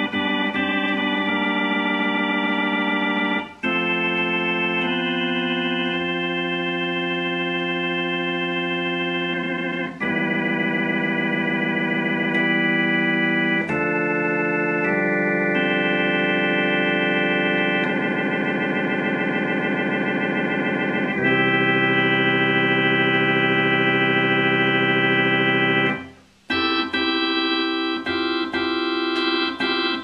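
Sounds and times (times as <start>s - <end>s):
organ playing sustained chords: 0.0s - 30.0s.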